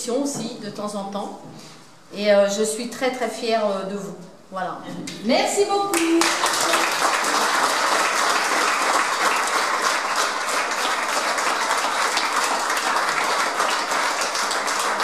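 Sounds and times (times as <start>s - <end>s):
crowd applauding: 5.9s - 15.0s.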